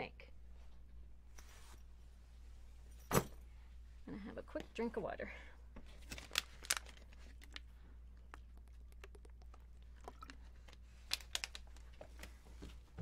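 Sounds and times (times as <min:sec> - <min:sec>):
plastic bottle crackling: 0:06.0 - 0:12.3
person drinking: 0:07.4 - 0:11.5.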